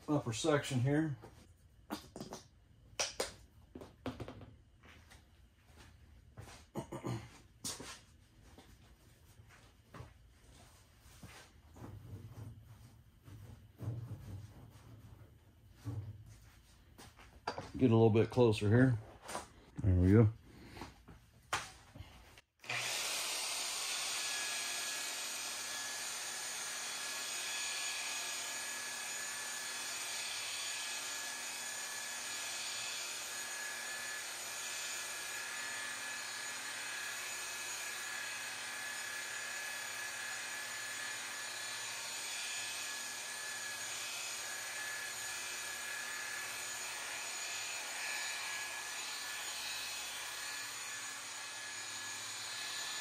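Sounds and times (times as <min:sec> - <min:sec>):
electric polisher motor whine: 0:22.6 - 0:53.0.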